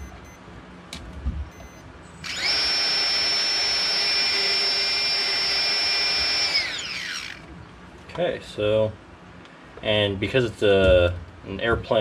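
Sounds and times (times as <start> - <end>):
electric motor high-pitched whine: 2.2 - 7.5.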